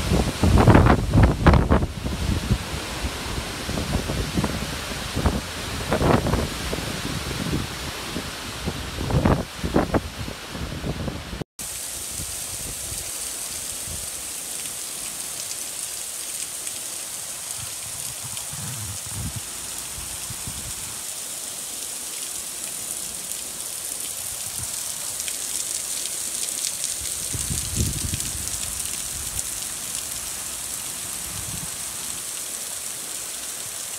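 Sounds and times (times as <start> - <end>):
heavy rain on water: 0.0 - 33.9.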